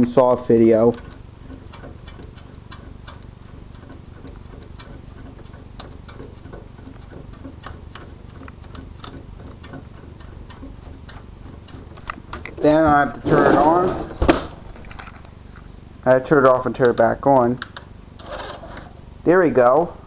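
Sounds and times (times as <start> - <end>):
steady low hum: 0.0 - 20.0
small clicks from tape mechanism: 0.8 - 12.6.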